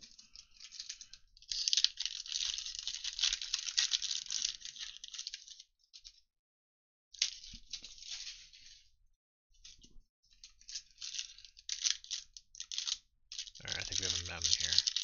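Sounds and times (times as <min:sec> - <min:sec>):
foil wrapper tearing and crinkling: 0:00.1 - 0:05.7, 0:10.6 - 0:15.0.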